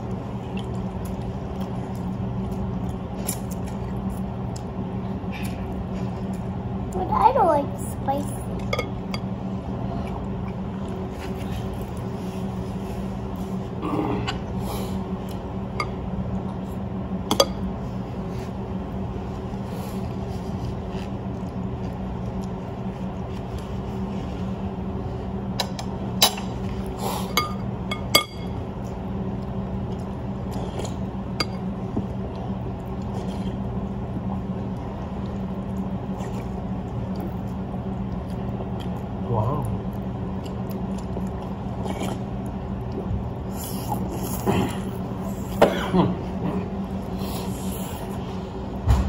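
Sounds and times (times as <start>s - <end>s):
steady low hum: 0.0s - 49.0s.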